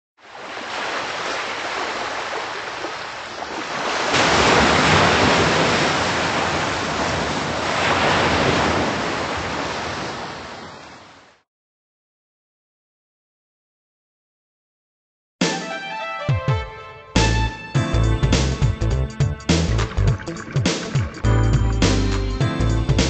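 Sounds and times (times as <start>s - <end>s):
ocean waves rushing: 0.2s - 11.4s, 19.6s - 22.8s.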